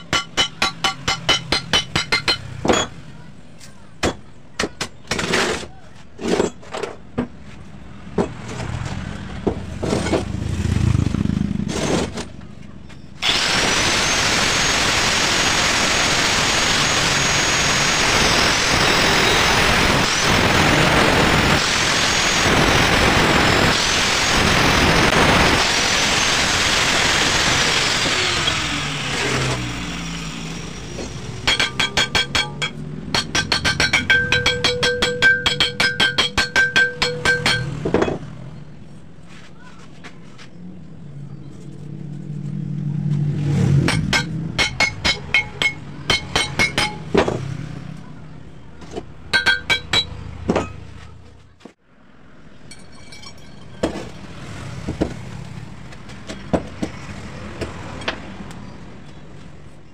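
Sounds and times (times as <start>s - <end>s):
angle grinder cutting steel: 13.2s - 37.8s, 43.7s - 47.2s
hammer blows on metal pipe: 31.4s - 37.8s, 43.8s - 47.2s.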